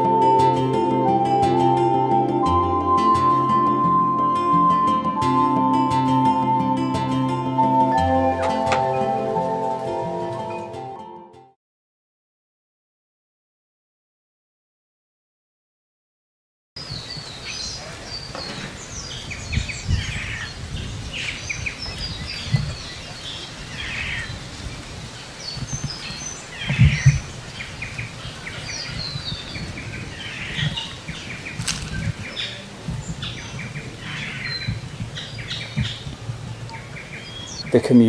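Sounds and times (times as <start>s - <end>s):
many birds calling: 16.8s - 38.0s.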